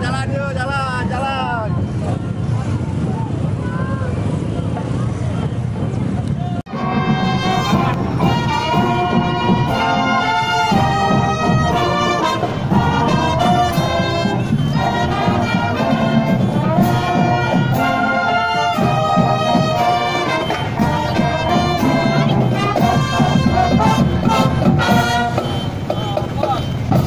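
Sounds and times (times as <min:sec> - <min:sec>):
marching band brass playing: 0:06.7 - 0:27.0.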